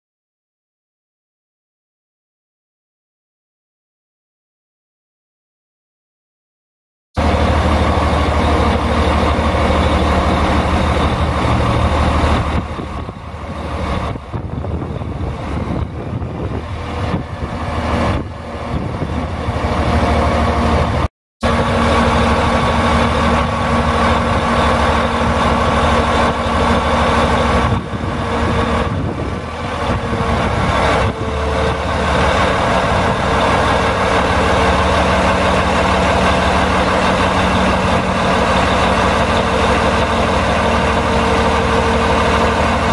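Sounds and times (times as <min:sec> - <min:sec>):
diesel engine running: 0:07.2 - 0:42.9.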